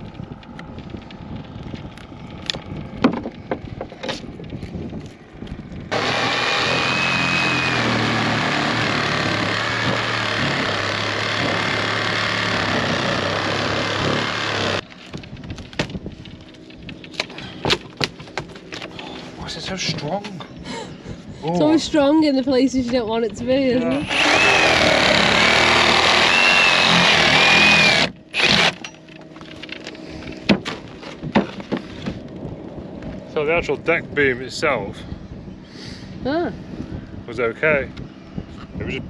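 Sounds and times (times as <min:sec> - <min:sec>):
motorised tool whining: 0:00.0 - 0:17.8, 0:23.5 - 0:30.5.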